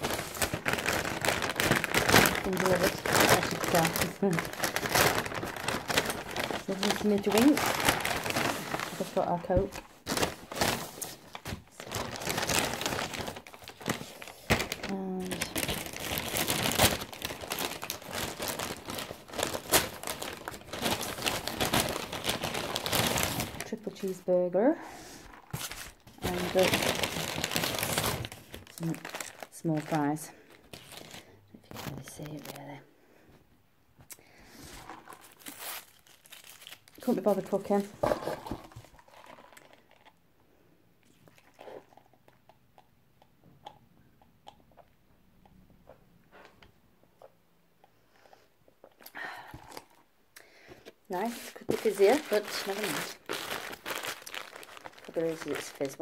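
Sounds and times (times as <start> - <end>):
paper bag rustling: 0.0 - 24.2, 25.2 - 32.6, 51.1 - 56.0.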